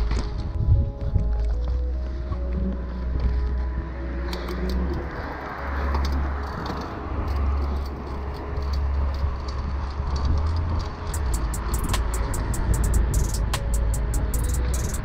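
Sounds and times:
tyre noise on pavement: 0.0s - 14.2s
wind buffeting microphone: 0.0s - 15.0s
bike clicks and rattles: 4.3s - 15.0s.

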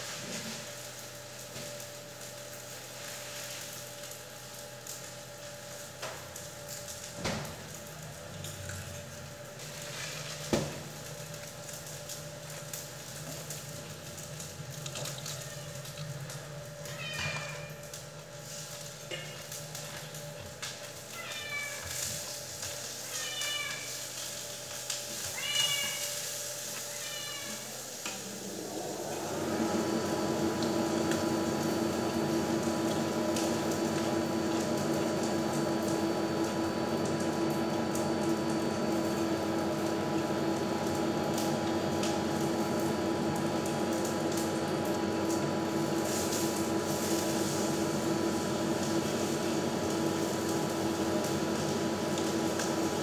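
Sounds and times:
steady mechanical hum: 0.0s - 53.0s
cat meowing: 16.9s - 17.8s, 21.2s - 22.0s, 23.1s - 23.9s, 25.3s - 26.1s.

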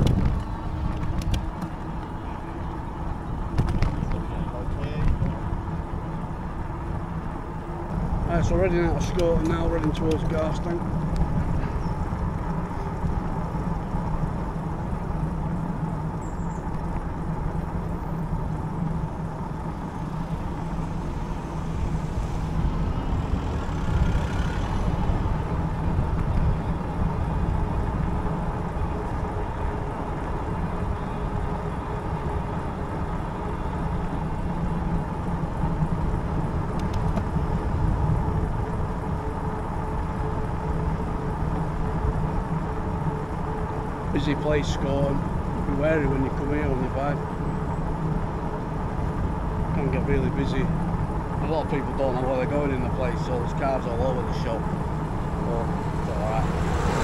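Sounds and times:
low hum: 0.0s - 52.1s, 52.7s - 57.0s
bike tyres on tarmac: 0.0s - 57.0s
wind rumbling on microphone: 0.0s - 57.0s.

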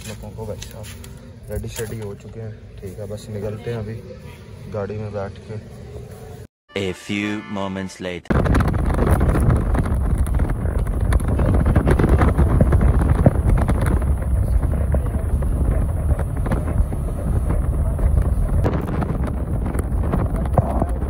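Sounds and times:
car driving rumble: 8.3s - 21.0s
wind buffeting microphone: 8.3s - 21.0s.

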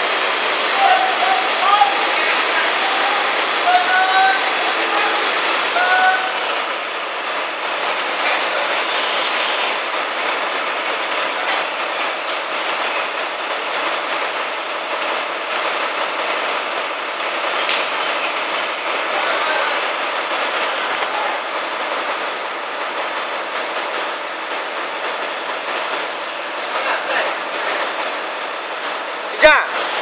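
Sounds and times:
truck engine and crane hydraulics: 0.0s - 19.2s, 19.8s - 26.7s, 27.9s - 30.0s
short rising chirps: 29.7s - 30.0s.

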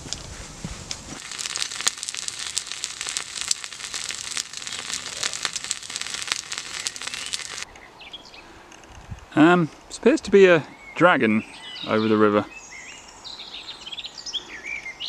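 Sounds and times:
food sizzling in a skillet: 1.2s - 7.6s.

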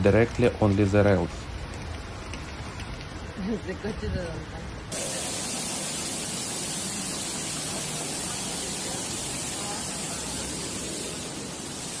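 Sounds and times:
water pouring onto tracks: 4.9s - 12.0s.

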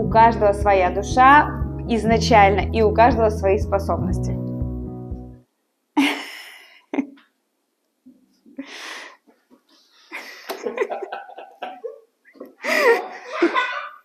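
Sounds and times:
breathing: 8.6s - 10.5s, 12.6s - 13.4s
child laughing: 12.6s - 14.0s.

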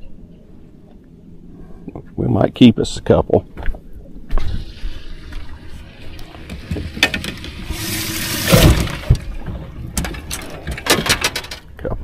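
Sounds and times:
water splashing: 4.6s - 9.5s.

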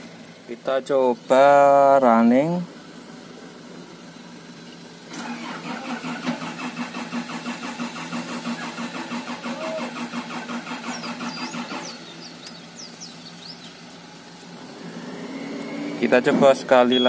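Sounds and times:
diesel engine cranking on starter: 5.0s - 16.9s.

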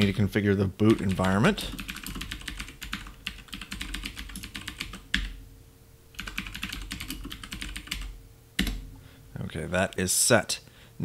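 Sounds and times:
typing on computer keyboard: 0.9s - 5.4s, 6.2s - 8.8s.

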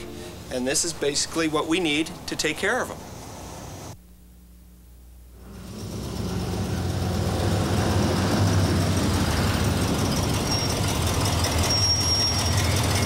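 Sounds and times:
truck engine rumbling: 5.4s - 13.0s.

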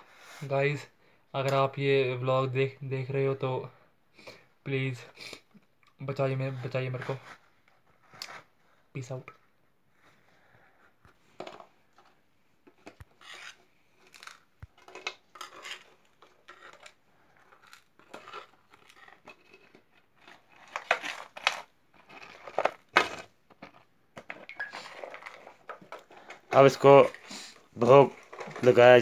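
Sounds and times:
sweets scraping in metal bowl: 15.3s - 23.2s.

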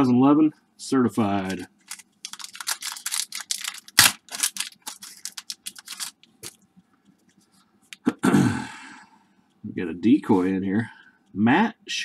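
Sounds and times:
foil wrapper tearing and crinkling: 1.4s - 6.3s.

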